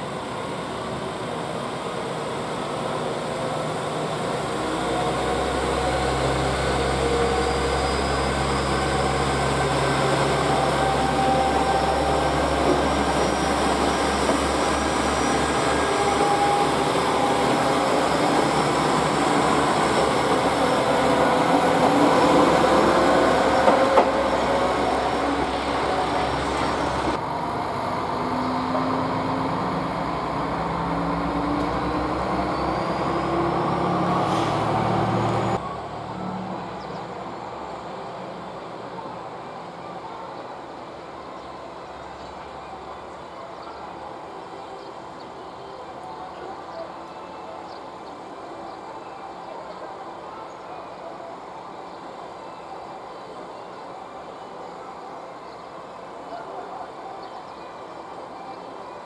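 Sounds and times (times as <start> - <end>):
train wheels on rails: 0.0 - 27.3
diesel engine droning: 1.1 - 38.1.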